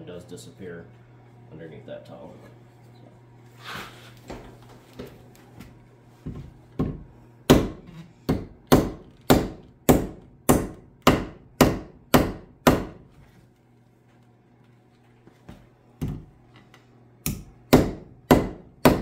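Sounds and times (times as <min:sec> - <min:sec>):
hammer striking wooden wedge: 0:06.8 - 0:13.0, 0:17.3 - 0:19.0.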